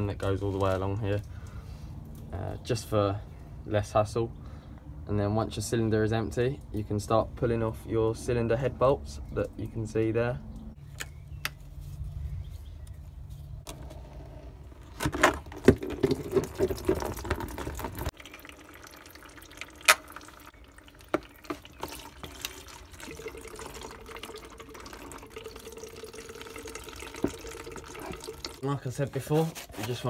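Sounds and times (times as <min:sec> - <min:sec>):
coolant dripping and running: 0:15.4 - 0:28.9.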